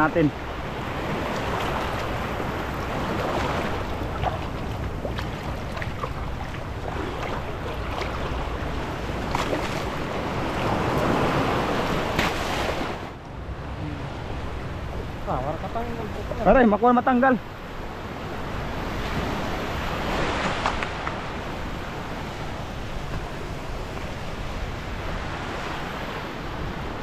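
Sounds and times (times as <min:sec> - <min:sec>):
small waves washing on sand: 0:00.0 - 0:27.0
wind on microphone: 0:17.4 - 0:27.0.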